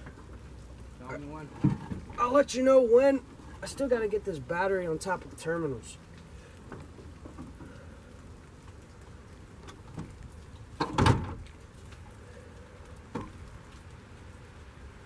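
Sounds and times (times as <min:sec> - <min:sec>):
rain pattering on a truck: 0:00.0 - 0:15.0.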